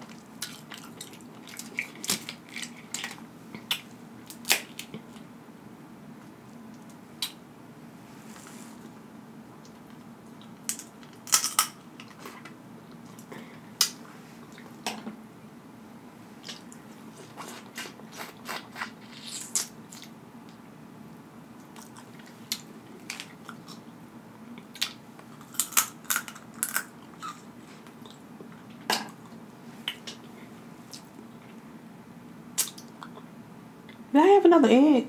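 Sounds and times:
person chewing and smacking: 0:00.0 - 0:05.3, 0:16.4 - 0:20.2, 0:21.6 - 0:23.9, 0:24.5 - 0:30.3, 0:32.6 - 0:33.3
crab legs clicking and crackling: 0:00.1 - 0:04.9, 0:24.8 - 0:27.4.

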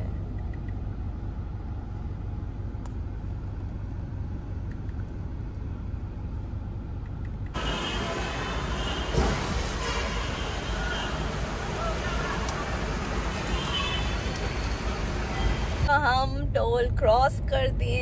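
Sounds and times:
thump: 0:09.1 - 0:09.6.

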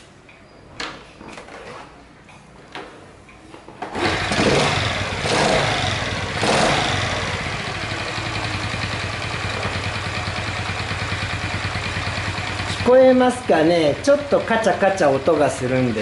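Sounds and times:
engine kick-started and idling: 0:04.0 - 0:16.0
faint engine clacking: 0:07.2 - 0:13.4.

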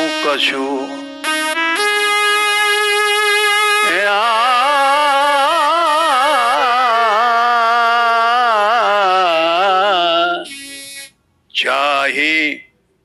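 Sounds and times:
elderly man singing: 0:03.8 - 0:10.5.

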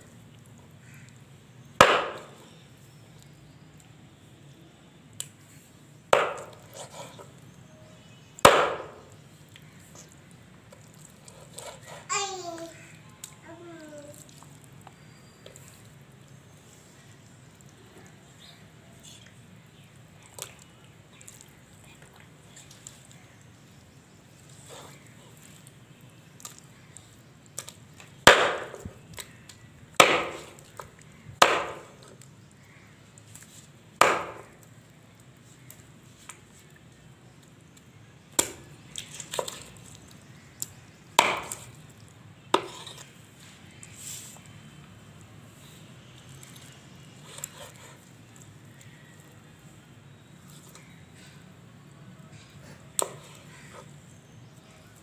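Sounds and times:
knife chopping on wooden board: 0:01.8 - 0:02.4, 0:06.1 - 0:06.8, 0:08.4 - 0:09.0, 0:28.3 - 0:28.9, 0:30.0 - 0:30.6, 0:31.4 - 0:32.0, 0:34.0 - 0:34.5, 0:41.2 - 0:41.6.

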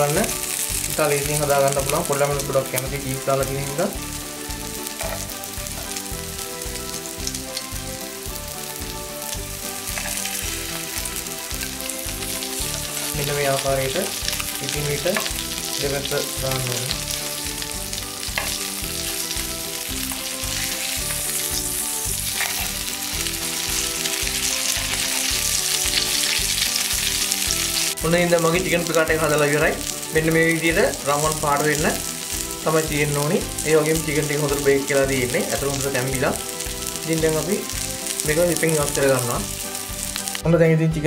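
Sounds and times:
cutlets sizzling in frying pan: 0:00.0 - 0:40.4
metal tongs scraping pan: 0:22.2 - 0:22.8.

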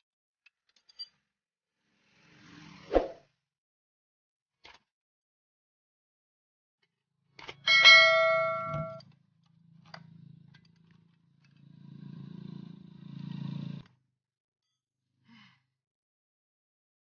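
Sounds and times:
metal tool clanging on metal: 0:07.7 - 0:09.0.

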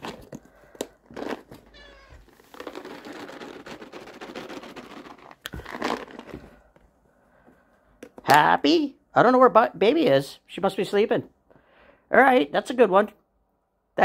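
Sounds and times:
treat pouch rustling and rattling: 0:00.0 - 0:06.7
cat chirping meow: 0:01.7 - 0:02.2.

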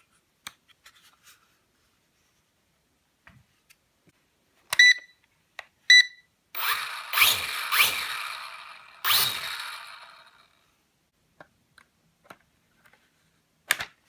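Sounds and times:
quadcopter motors whirring: 0:06.6 - 0:10.4.

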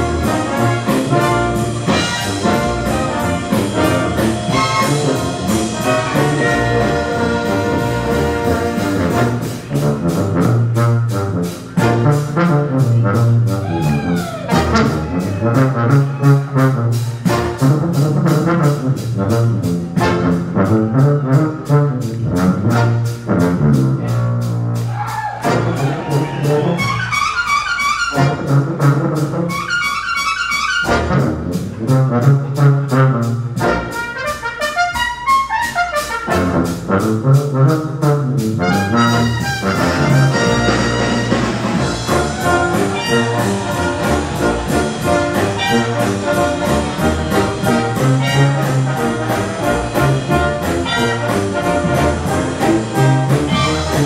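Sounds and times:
brass band playing rock and roll: 0:00.0 - 0:54.0
drum kit beat: 0:00.0 - 0:54.0.

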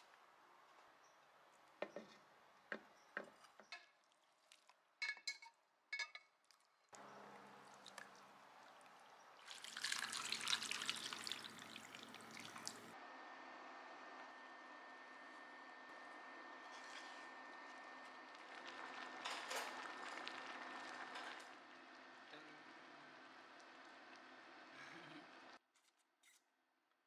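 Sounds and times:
broth bubbling in a pot: 0:07.0 - 0:13.0, 0:16.7 - 0:22.4.

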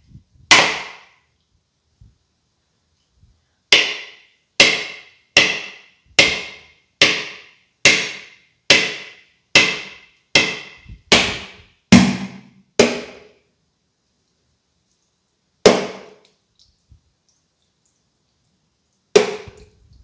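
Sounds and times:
coconut shell being struck: 0:00.5 - 0:01.1, 0:03.7 - 0:13.3, 0:15.7 - 0:16.2, 0:19.2 - 0:19.6.

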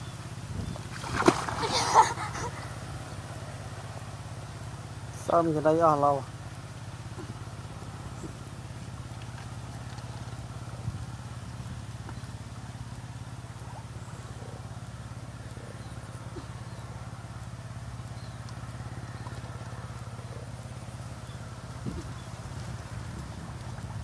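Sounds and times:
low mechanical drone: 0:00.0 - 0:24.0.

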